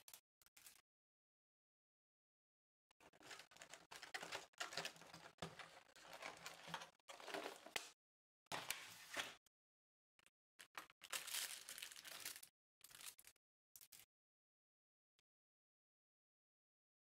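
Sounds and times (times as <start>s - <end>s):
plastic tray crackling: 3.2s - 7.9s.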